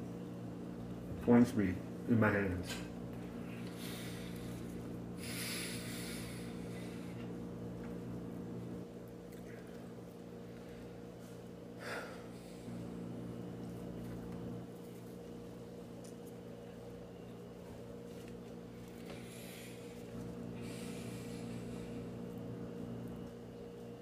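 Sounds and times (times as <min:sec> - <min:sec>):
low electrical hum: 0:00.0 - 0:24.0
noisy breath: 0:03.4 - 0:07.3, 0:11.8 - 0:12.9, 0:19.0 - 0:22.2
person chewing toast: 0:09.0 - 0:11.6.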